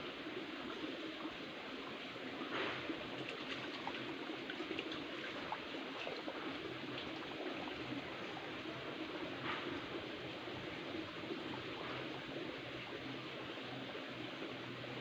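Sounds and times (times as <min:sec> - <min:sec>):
stream trickling over stones: 0:00.1 - 0:15.0
water drips and splashes: 0:00.5 - 0:15.0.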